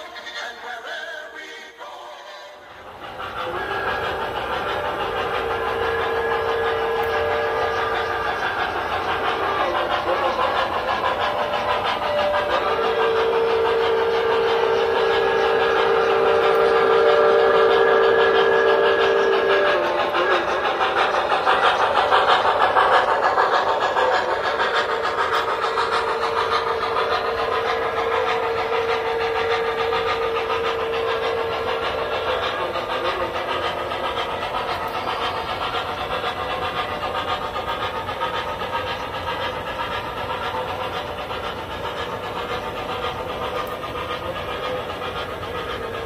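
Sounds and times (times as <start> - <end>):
model train wheels clicking: 0.0 - 46.0
steam locomotive hiss: 0.0 - 46.0
steady tone: 2.8 - 36.5.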